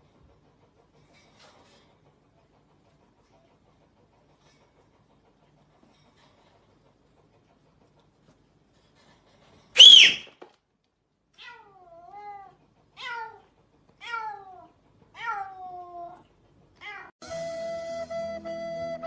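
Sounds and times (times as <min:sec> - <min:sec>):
flute music: 0:09.8 - 0:10.2, 0:17.2 - 0:19.0
cat meowing: 0:11.4 - 0:13.4, 0:14.0 - 0:16.2, 0:16.8 - 0:17.1
cat crying: 0:11.4 - 0:16.2.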